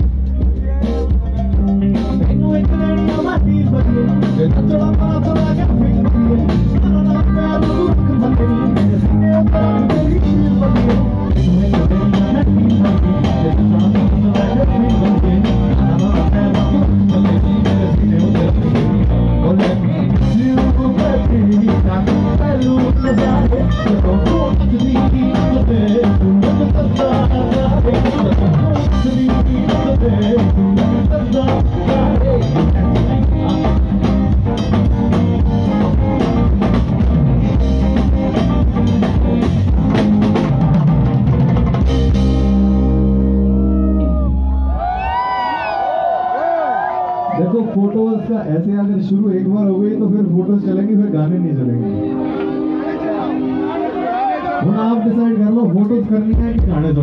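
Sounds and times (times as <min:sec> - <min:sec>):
live pop band: 0:00.0 - 0:57.0
man singing into a microphone: 0:00.3 - 0:34.0, 0:47.4 - 0:52.0, 0:54.4 - 0:57.0.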